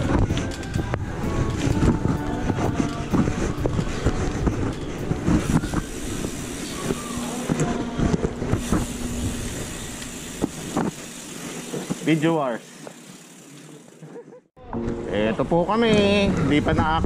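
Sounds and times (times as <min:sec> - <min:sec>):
wind buffeting camera: 0:00.0 - 0:06.5
bike rattling and knocking: 0:00.0 - 0:14.0
steady low hum: 0:02.9 - 0:12.0.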